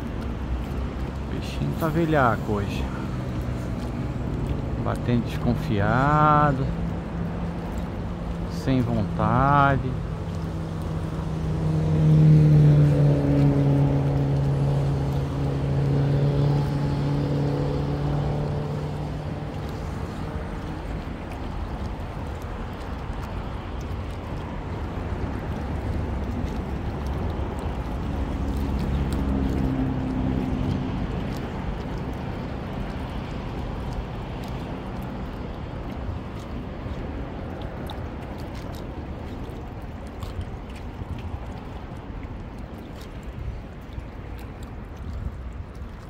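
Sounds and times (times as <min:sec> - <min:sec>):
engine passing by: 0:00.0 - 0:45.2
distant traffic rumble: 0:00.0 - 0:46.0.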